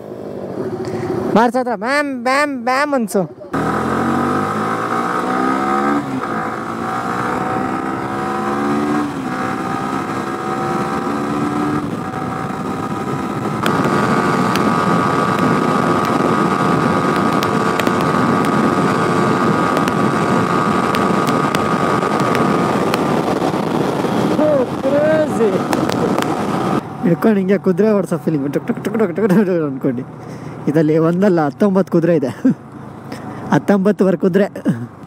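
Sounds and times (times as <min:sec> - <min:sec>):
motorcycle engine accelerating: 0:03.5 - 0:30.7
rushing noise: 0:03.6 - 0:29.1.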